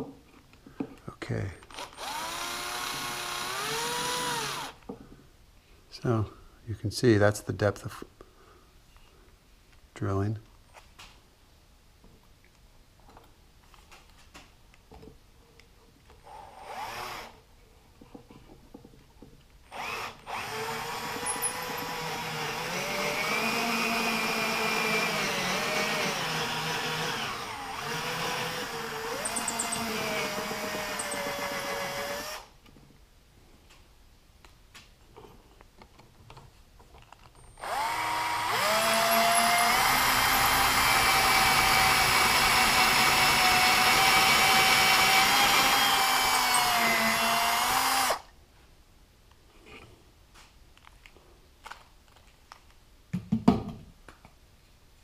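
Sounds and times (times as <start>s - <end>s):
power drill boring into wood: 1.7s - 4.8s, 16.3s - 17.4s, 19.7s - 32.5s, 37.6s - 48.3s.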